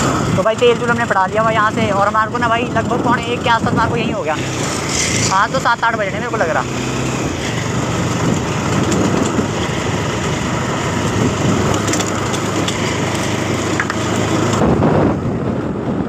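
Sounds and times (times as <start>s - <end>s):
motorcycle engine: 0.0s - 16.0s
tyre noise on gravel road: 4.3s - 16.0s.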